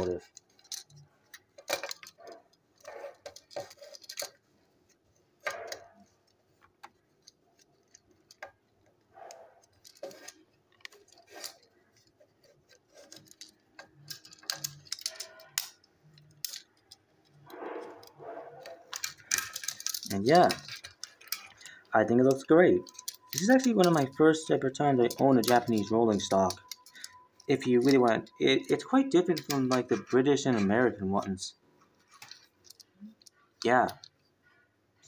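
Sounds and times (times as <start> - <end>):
plastic toy train clicks: 13.0 - 17.5, 18.6 - 24.2, 25.0 - 30.1.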